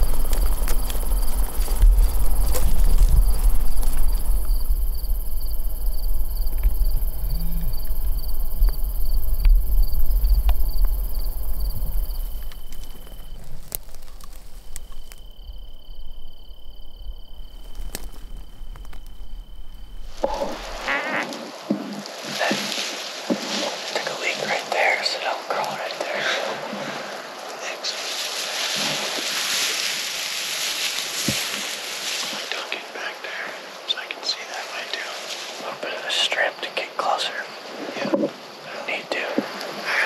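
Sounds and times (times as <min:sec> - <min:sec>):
wind rumble on microphone: 0:00.0 - 0:23.5
insect high trill: 0:00.0 - 0:40.0
insects pulsing chirp: 0:00.0 - 0:40.0.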